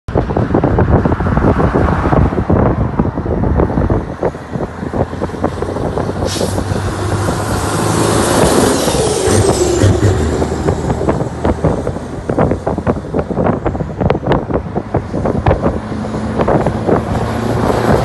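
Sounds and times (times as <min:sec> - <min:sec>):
wind buffeting: 0:00.1 - 0:18.0
low engine drone: 0:05.1 - 0:18.0.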